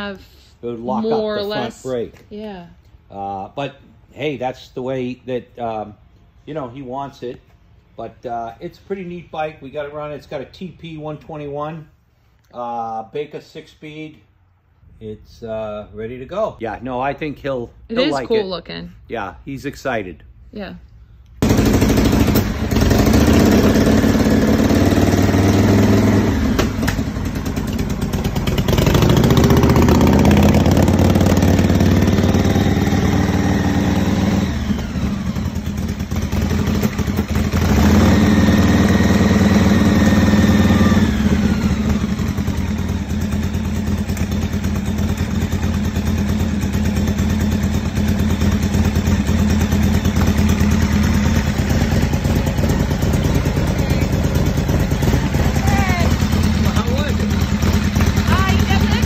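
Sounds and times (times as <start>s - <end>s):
motorcycle engine revving: 21.4s - 59.0s.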